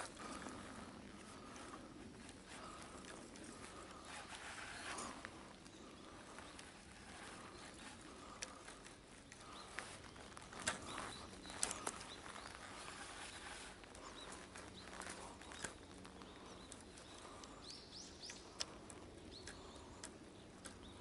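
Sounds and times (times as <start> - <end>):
faint outdoor ambience: 0.0 - 21.0
light sharp clicks: 7.3 - 21.0.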